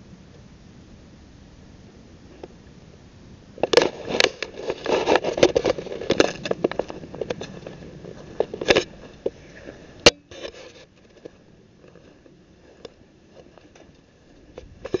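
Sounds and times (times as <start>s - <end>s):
camera handling noise: 8.4s - 9.3s.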